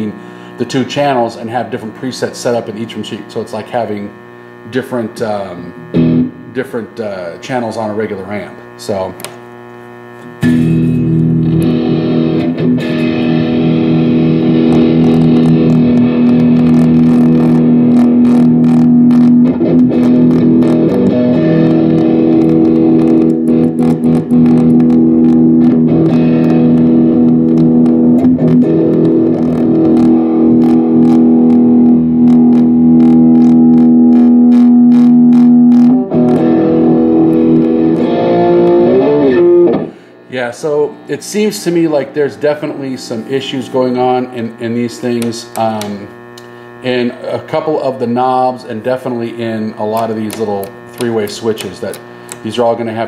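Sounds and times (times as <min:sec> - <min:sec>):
amp crackling: 0:00.0 - 0:53.0
distorted electric guitar chord: 0:05.0 - 0:06.8, 0:10.4 - 0:40.1.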